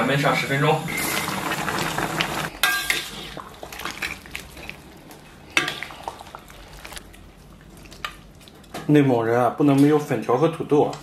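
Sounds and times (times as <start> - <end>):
utensils clanking on metal pot: 2.5 - 4.2, 5.5 - 5.9.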